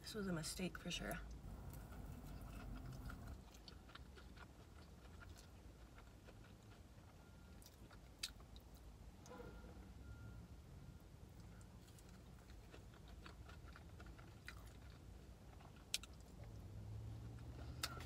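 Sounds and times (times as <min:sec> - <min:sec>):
passing traffic rumble: 0:00.4 - 0:03.4, 0:16.2 - 0:18.0
chewing with wet mouth clicks: 0:01.2 - 0:09.4, 0:11.4 - 0:16.7, 0:17.3 - 0:18.0.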